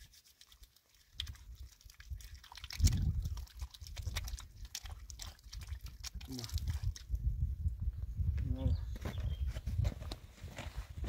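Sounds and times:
water splashing on hands: 0.0s - 7.2s.

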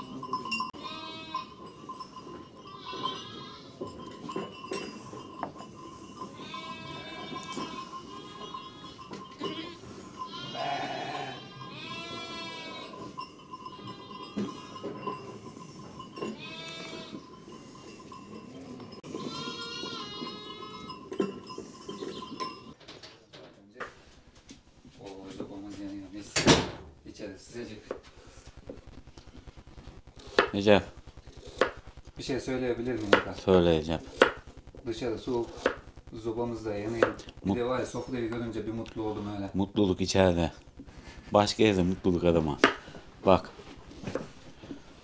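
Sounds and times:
sheep bleating: 0.8s - 1.8s, 2.6s - 3.9s, 6.2s - 15.0s, 16.2s - 17.8s, 19.0s - 21.2s.

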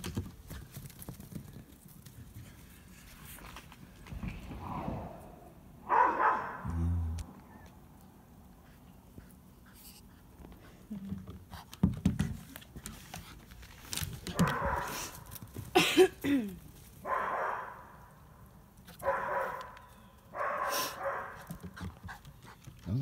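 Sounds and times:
dogs barking loudly: 5.8s - 6.7s, 14.3s - 15.2s, 17.0s - 18.0s, 18.9s - 22.1s.

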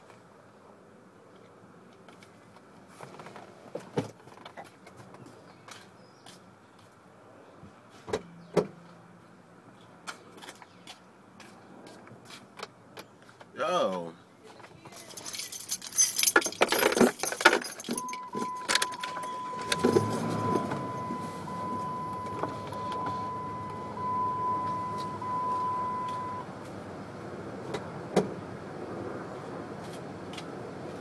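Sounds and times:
car keys jangling: 14.9s - 26.3s
car engine idling: 17.7s - 26.5s
high electronic warning tone: 18.0s - 26.5s.

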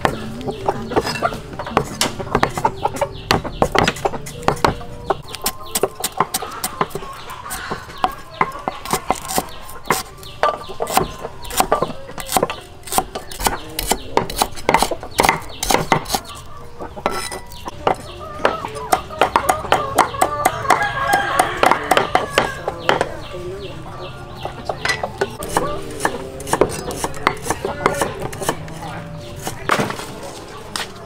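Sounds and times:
chickens clucking: 0.0s - 31.0s
knife chopping on wooden block: 3.3s - 16.3s, 25.2s - 28.8s.

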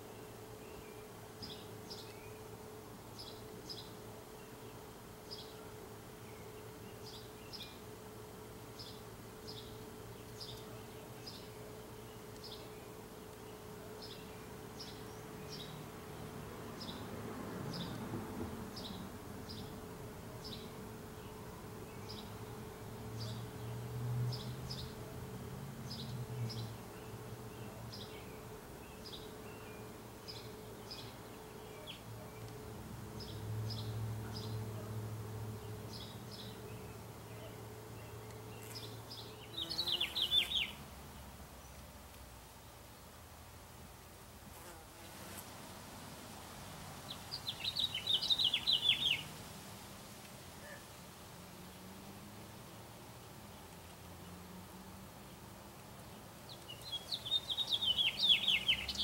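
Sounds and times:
wasp wing buzz: 0.0s - 17.1s, 18.8s - 40.8s
small bird chirping: 35.9s - 40.8s, 47.1s - 49.3s, 56.5s - 59.0s.

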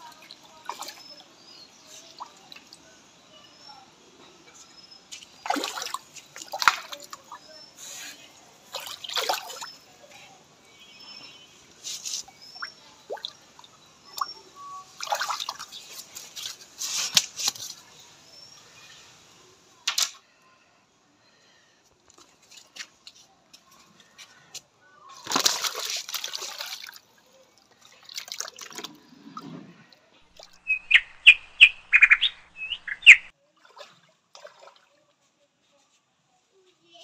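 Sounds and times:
fish thrashing and splashing: 5.3s - 7.2s, 8.7s - 9.8s, 25.2s - 27.0s.

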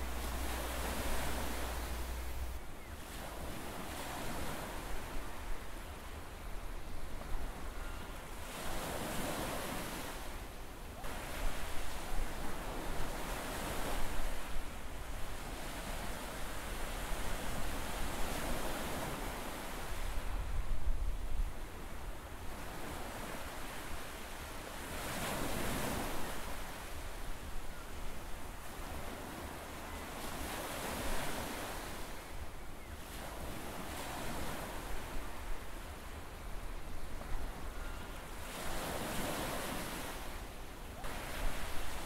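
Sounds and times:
ocean waves washing: 0.0s - 5.1s.

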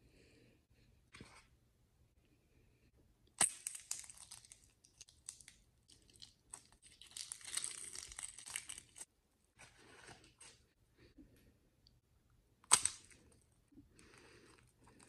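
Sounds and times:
eggshell cracking: 3.3s - 9.1s, 12.6s - 13.4s
shell pieces crunching: 3.4s - 9.1s, 12.6s - 13.4s.

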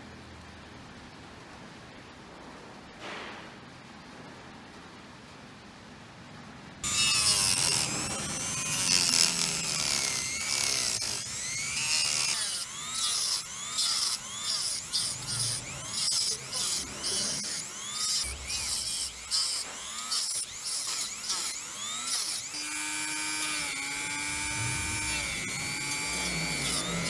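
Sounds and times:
rotary tool cutting plastic: 6.8s - 27.0s.

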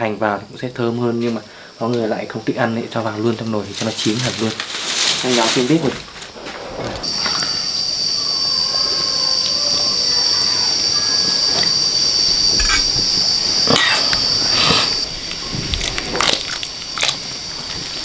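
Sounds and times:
shrill high-pitched drone: 7.1s - 15.1s.

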